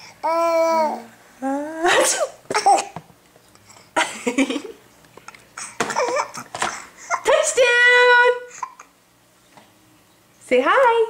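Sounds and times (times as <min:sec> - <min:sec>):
person sneezing: 0:01.8 - 0:03.0.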